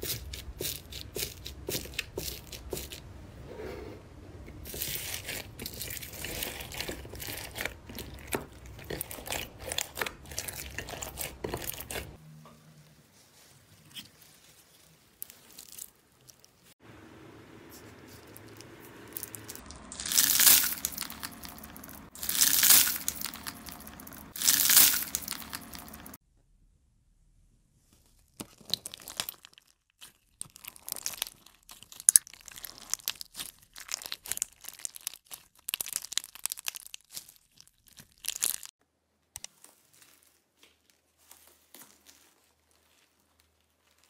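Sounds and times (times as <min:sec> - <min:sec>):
hand crunching foam beads: 0:00.0 - 0:03.0, 0:04.6 - 0:12.2, 0:17.7 - 0:26.2, 0:28.2 - 0:38.7, 0:39.4 - 0:44.0
slime squishing: 0:04.5 - 0:12.2, 0:13.1 - 0:16.7, 0:17.6 - 0:26.2, 0:28.3 - 0:38.7, 0:39.4 - 0:44.0.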